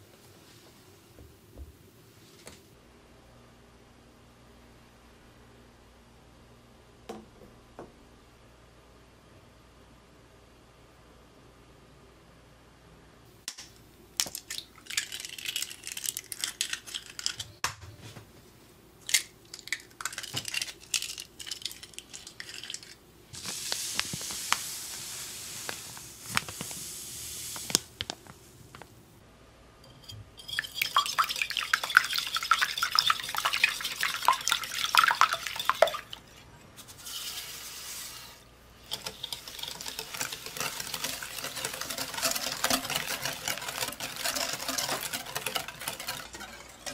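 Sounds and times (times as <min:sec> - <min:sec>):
sugar pouring: 0:14.2 - 0:17.4, 0:19.4 - 0:27.9, 0:30.4 - 0:36.3, 0:37.0 - 0:46.9
whisk beating in glass bowl: 0:30.4 - 0:36.3, 0:38.8 - 0:46.9.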